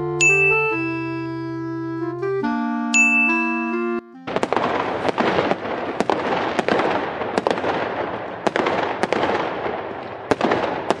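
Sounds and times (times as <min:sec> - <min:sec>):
fireworks bangs: 0:04.3 - 0:11.0
fireworks crackling: 0:04.3 - 0:11.0.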